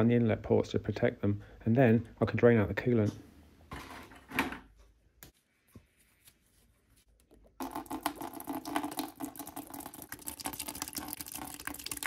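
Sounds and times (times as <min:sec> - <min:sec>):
coolant gushing and splashing: 0:07.6 - 0:12.0.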